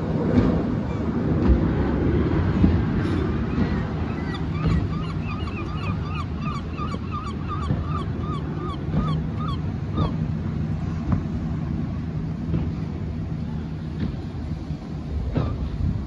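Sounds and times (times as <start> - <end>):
steady low rumble: 0.0 - 16.0
bird calling: 3.1 - 10.2.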